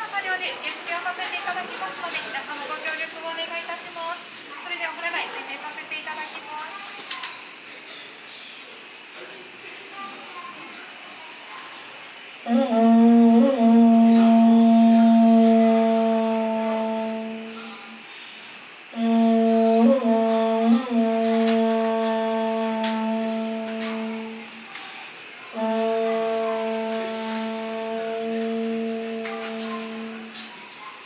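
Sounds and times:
conch shell trumpet blasts: 12.4 - 18.0, 18.9 - 24.6, 25.5 - 30.5.

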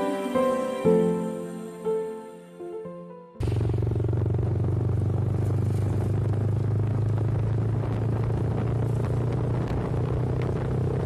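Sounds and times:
motorbike engine running: 3.4 - 11.0
road noise: 3.4 - 11.0.

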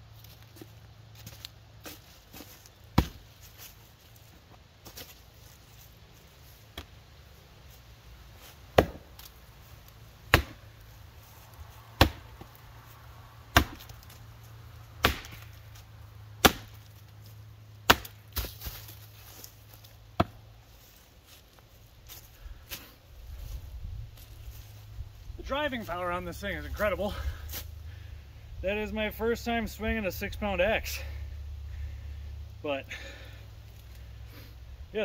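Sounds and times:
axe chopping wood: 1.9 - 3.3, 6.7 - 7.0, 8.7 - 9.3, 10.3 - 10.8, 11.9 - 12.6, 13.5 - 14.2, 15.0 - 15.7, 16.4 - 16.9, 17.8 - 18.9, 20.1 - 20.4.

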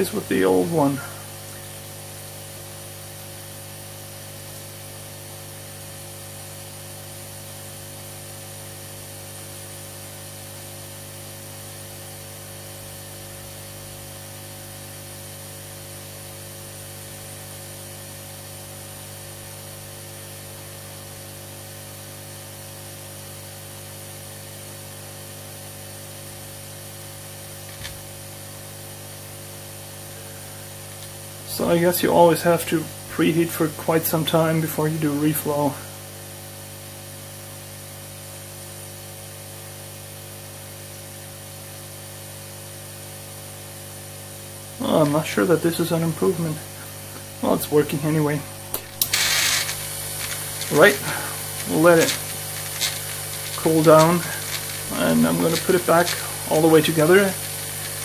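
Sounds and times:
air pump humming: 0.0 - 22.1, 23.1 - 38.7, 43.2 - 58.0
air hissing through hose: 48.8 - 58.0.

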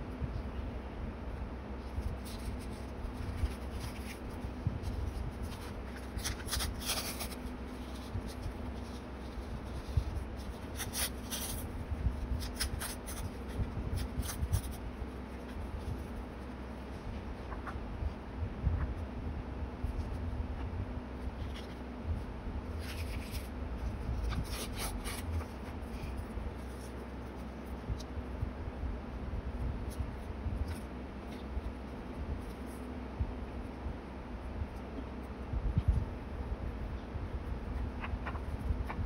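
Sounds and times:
paper rustling and crinkling: 1.8 - 18.2, 19.8 - 22.0, 22.7 - 28.4, 29.9 - 32.9, 37.7 - 39.0.

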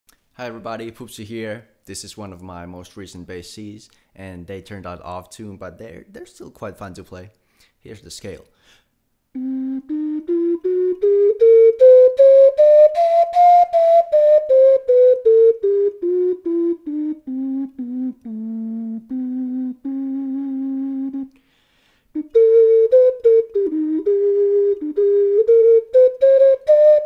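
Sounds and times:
ocarina playing: 9.3 - 27.0.

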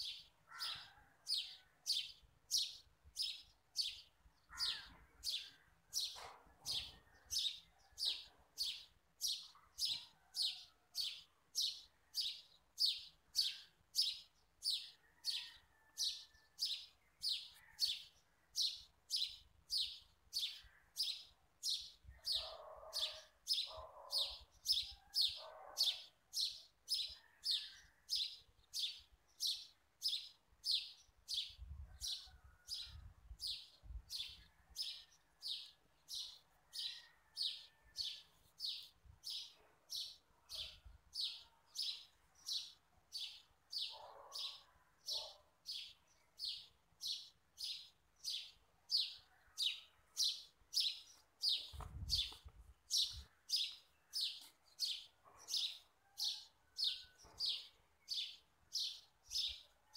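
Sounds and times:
bird chirping: 0.0 - 15.6, 16.3 - 55.9.

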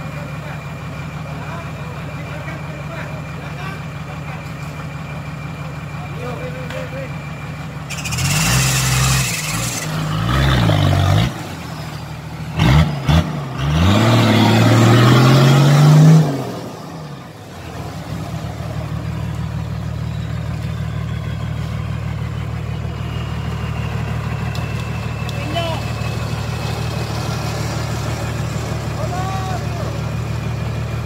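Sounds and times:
engine revving hard: 7.9 - 11.7, 12.5 - 17.0.

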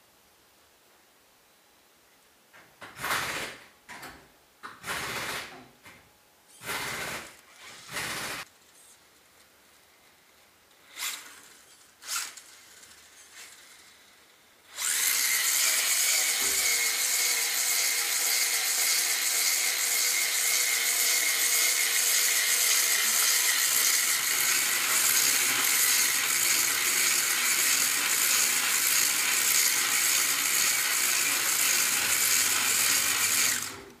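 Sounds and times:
rc car motor whine: 10.8 - 34.0.

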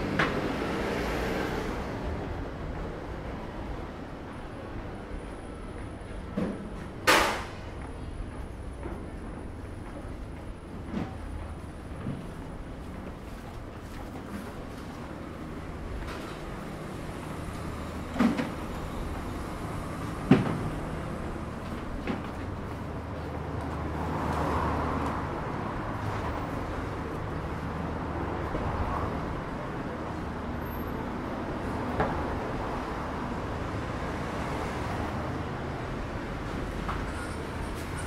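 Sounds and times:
low traffic hum: 0.0 - 38.0.

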